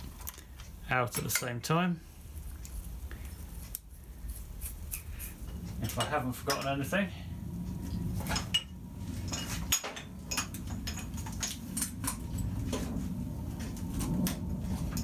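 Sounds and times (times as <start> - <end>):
wires clinking against metal frame: 0.0 - 1.8, 5.4 - 7.0, 7.9 - 13.0
low steady hum: 0.0 - 15.0.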